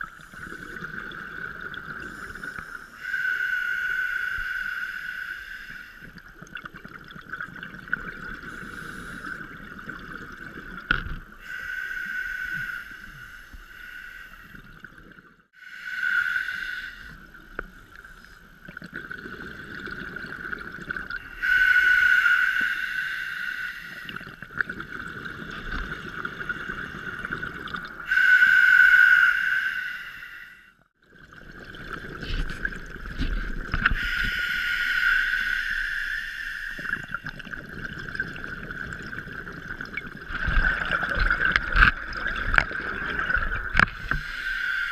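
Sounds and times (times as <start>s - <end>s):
diver breathing through regulator: 2.0s - 6.1s, 8.5s - 9.5s, 11.4s - 14.6s, 15.6s - 17.3s, 21.2s - 24.4s, 25.4s - 30.7s, 33.3s - 37.4s, 43.8s - 44.9s
bubbly exhalations: 31.3s - 34.4s, 36.8s - 44.4s.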